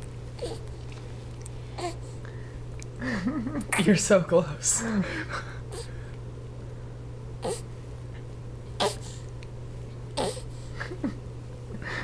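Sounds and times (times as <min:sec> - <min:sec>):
steady low hum: 0:00.0 - 0:12.0
baby grunting: 0:00.4 - 0:00.6, 0:01.8 - 0:02.0, 0:07.4 - 0:07.7, 0:08.8 - 0:09.1, 0:10.2 - 0:10.5.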